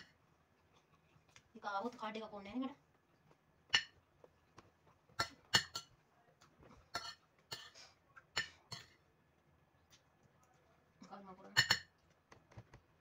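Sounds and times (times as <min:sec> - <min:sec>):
cutlery clinking on ceramic plate: 0:11.5 - 0:12.0.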